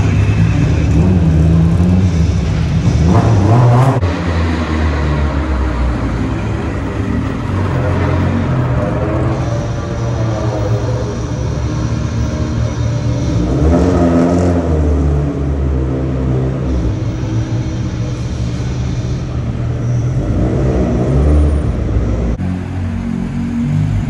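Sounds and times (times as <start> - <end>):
rally car engines revving: 0.0 - 24.0.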